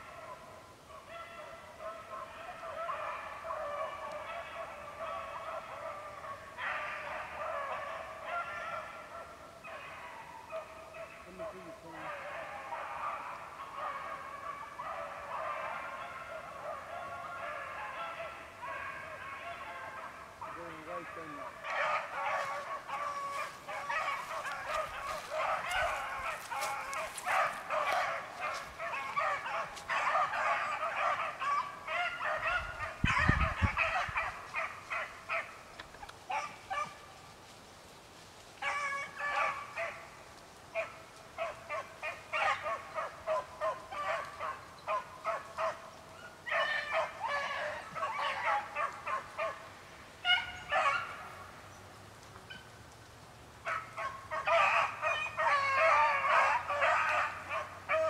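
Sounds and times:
dogs baying: 0:00.0 - 0:37.1, 0:38.6 - 0:51.6, 0:53.6 - 0:58.0.

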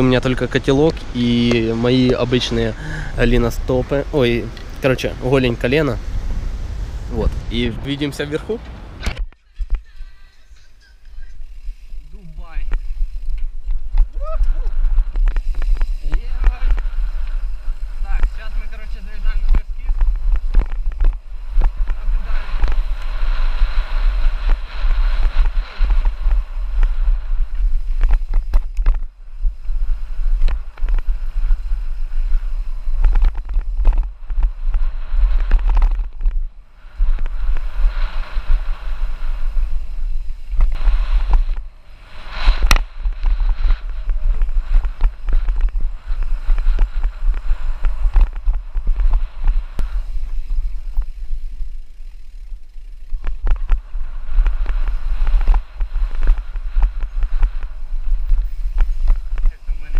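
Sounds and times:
wind buffeting microphone: 0:00.0 - 0:10.0, 0:10.7 - 0:59.9
bike knocks and rattles: 0:19.4 - 0:41.8, 0:42.5 - 0:59.7.

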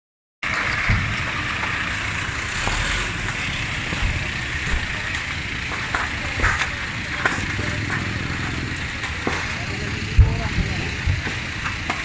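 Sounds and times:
fire engine running: 0:00.4 - 0:12.0.

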